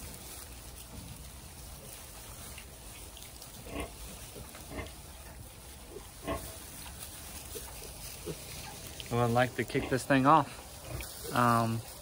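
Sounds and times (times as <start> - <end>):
piglets grunting: 3.6 - 6.8, 7.4 - 11.8.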